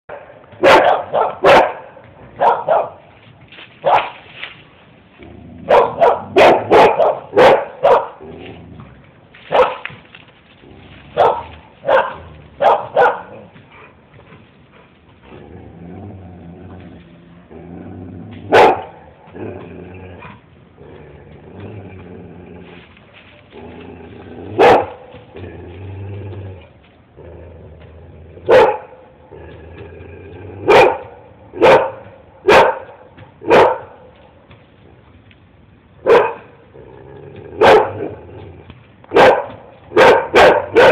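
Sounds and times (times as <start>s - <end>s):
dog barking: 0.1s - 3.0s, 3.8s - 4.2s, 5.7s - 8.2s, 9.5s - 9.9s, 11.2s - 13.4s, 18.5s - 19.0s, 24.6s - 25.0s, 28.5s - 29.0s, 30.6s - 34.1s, 36.0s - 36.5s, 37.6s - 38.2s, 39.1s - 40.9s.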